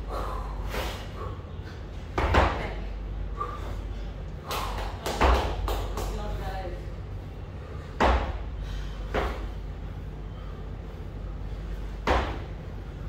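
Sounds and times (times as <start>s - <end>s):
forceful breaths: 0.0s - 2.2s, 3.2s - 5.0s, 7.0s - 13.0s.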